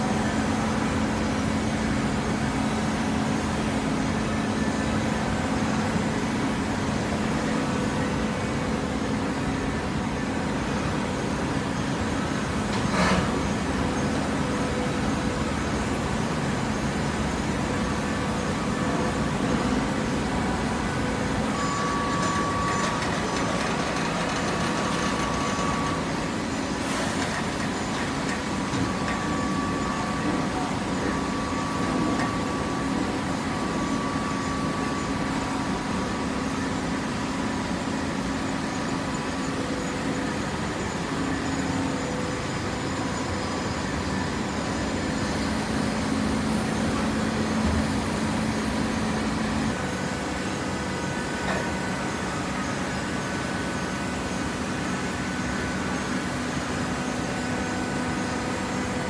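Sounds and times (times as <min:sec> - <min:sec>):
machine hum: 0:27.4 - 0:59.0
high steady whine: 0:27.5 - 0:59.0.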